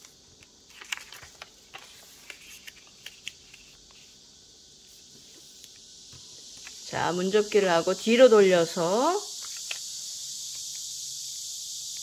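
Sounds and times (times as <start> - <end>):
paper crisp ticks and rustles: 0.0 - 4.1
faint steady hiss: 0.0 - 12.0.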